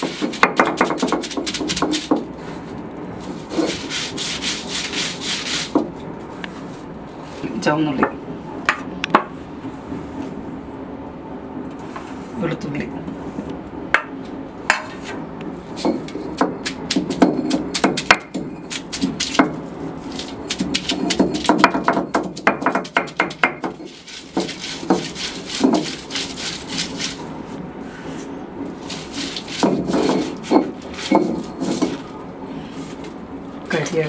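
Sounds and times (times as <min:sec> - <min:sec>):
stone grinding on stone: 0:20.0 - 0:27.2, 0:28.8 - 0:32.1.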